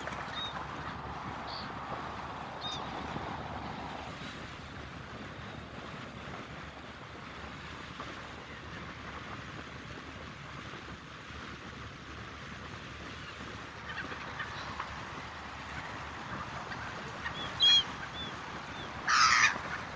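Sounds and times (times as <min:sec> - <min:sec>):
gulls calling: 0:00.0 - 0:04.4, 0:13.0 - 0:19.9
wind and water rushing: 0:00.0 - 0:19.9.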